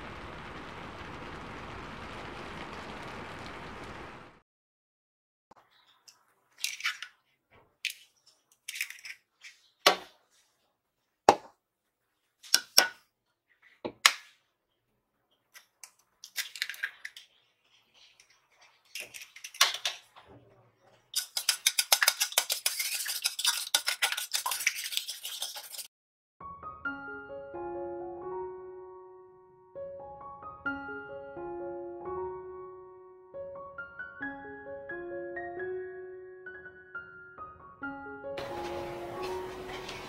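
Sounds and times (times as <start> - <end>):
eggs cracking on steel bowl: 15.5 - 17.4, 18.0 - 20.2, 21.0 - 25.9
whisk beating in steel bowl: 21.1 - 25.9.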